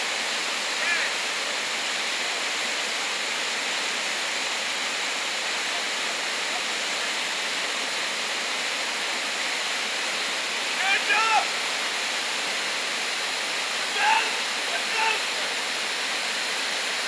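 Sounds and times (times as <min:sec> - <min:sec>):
river rapids rushing over boulders: 0:00.0 - 0:17.0.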